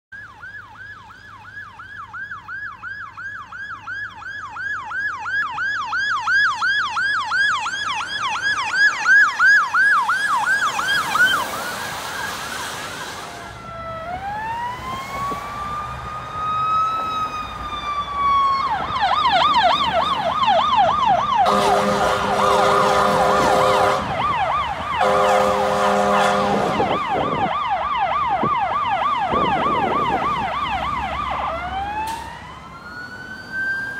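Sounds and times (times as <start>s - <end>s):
ambulance siren yelp and wail: 0.1s - 33.9s
vehicle horn blasts: 21.5s - 24.1s, 25.0s - 26.8s.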